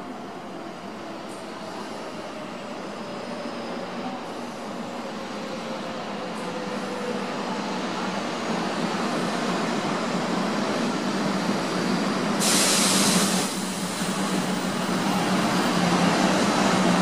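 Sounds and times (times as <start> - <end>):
loud hiss: 12.4 - 15.2.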